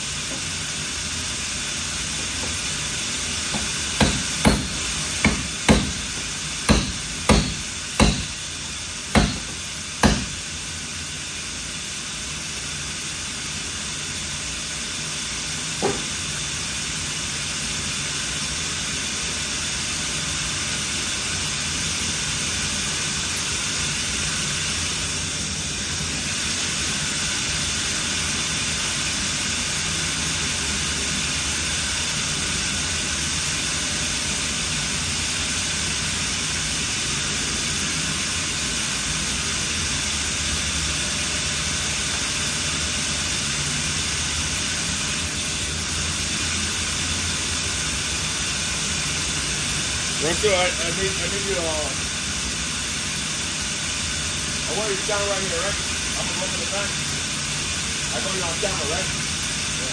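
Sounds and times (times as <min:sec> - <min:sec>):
steady shop hiss: 0:00.0 - 0:59.9
sharp knocks: 0:03.5 - 0:08.4, 0:09.2 - 0:10.4.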